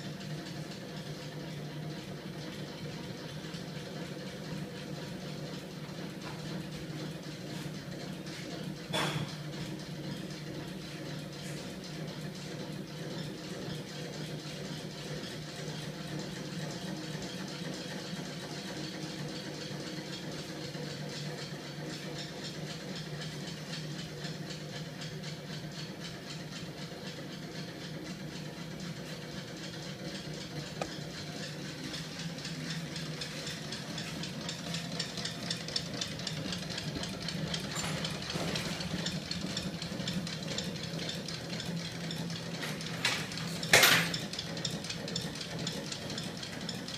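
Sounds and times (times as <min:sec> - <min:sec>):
engine mechanism humming and rattling: 0:00.0 - 0:46.9.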